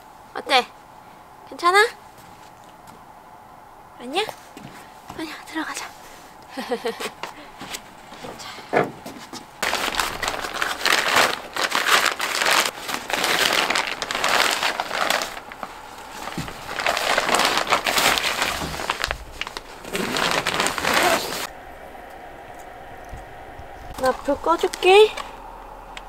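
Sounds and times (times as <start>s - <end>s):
tent fabric rustling: 9.1s - 21.5s.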